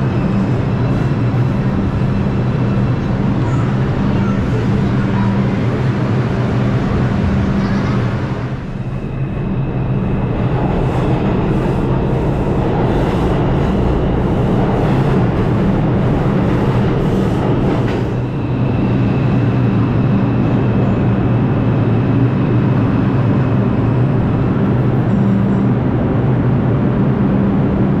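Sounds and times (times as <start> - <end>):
high steady train whine: 0.0 - 28.0
train rumbling: 0.0 - 28.0
train wheels clacking on rails: 10.4 - 20.0.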